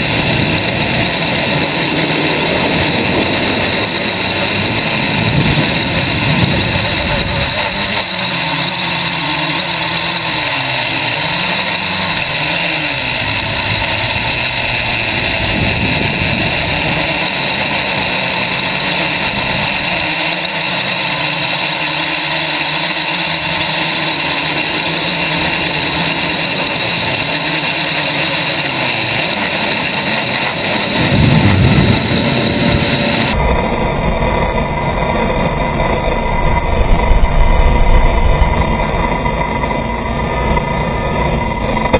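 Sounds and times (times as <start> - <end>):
drone motors whining: 0.0 - 41.9
wind rushing: 30.9 - 33.6.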